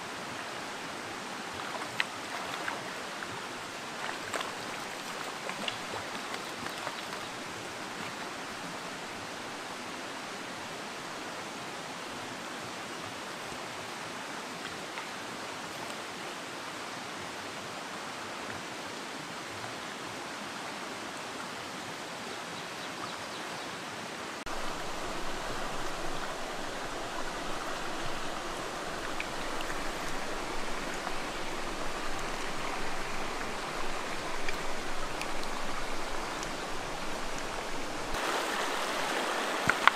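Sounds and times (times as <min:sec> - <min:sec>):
stream flowing over rocks: 0:00.0 - 0:39.9.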